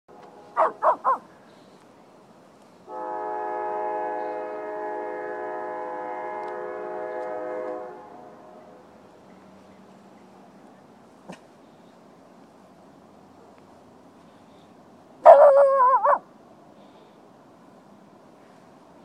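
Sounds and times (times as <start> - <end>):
train horn: 0.1 - 0.8, 2.9 - 9.0
dog barking: 0.6 - 1.3, 15.2 - 16.2.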